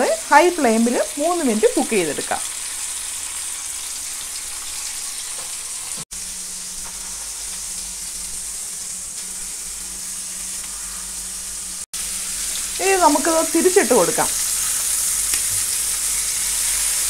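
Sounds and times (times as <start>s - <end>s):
chicken sizzling in frying pan: 0.0s - 17.0s.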